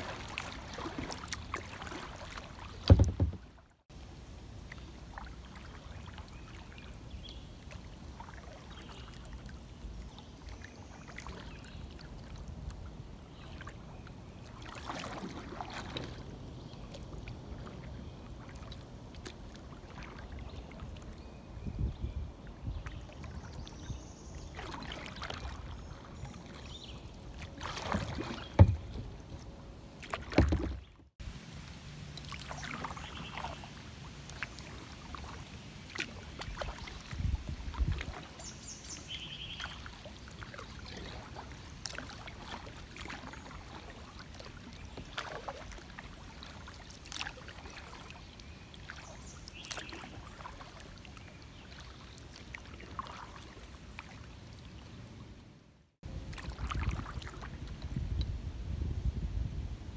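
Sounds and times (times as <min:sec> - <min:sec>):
paddle strokes in water: 0:00.0 - 0:55.4, 0:56.0 - 0:59.0
loud knocks: 0:02.9 - 0:03.4
water drips splashing: 0:40.5 - 0:43.4.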